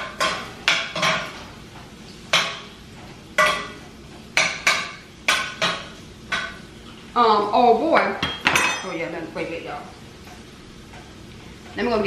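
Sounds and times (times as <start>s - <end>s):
metal spoon clinking on pan: 8.2s - 9.0s.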